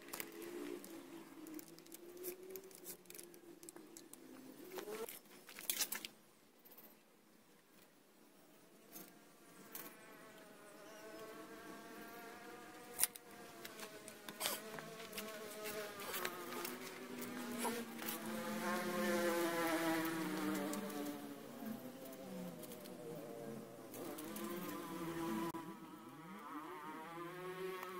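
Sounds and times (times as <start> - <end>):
flying insect buzzing: 9.0 - 27.9.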